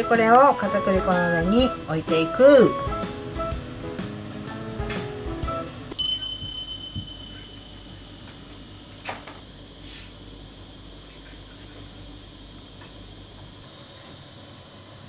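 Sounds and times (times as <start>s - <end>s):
steady low hum: 5.7s - 15.0s
ringing tone: 6.0s - 8.3s.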